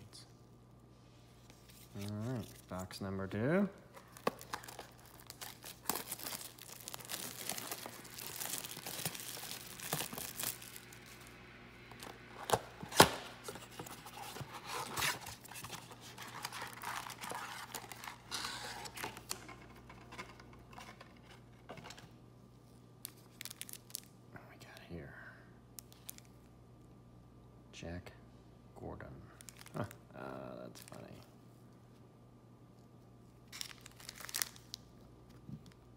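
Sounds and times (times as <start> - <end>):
foil packs crinkling: 4.0 - 11.3, 12.0 - 19.5, 23.0 - 24.1, 29.4 - 29.9, 33.5 - 34.9.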